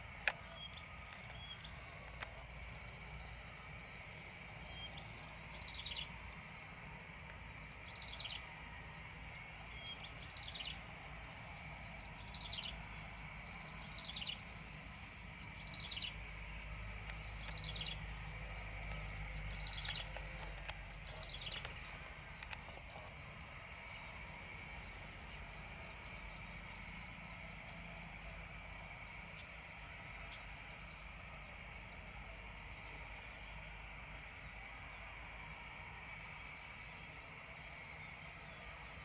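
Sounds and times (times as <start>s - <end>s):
idling jet engines rumble: 0.0s - 39.0s.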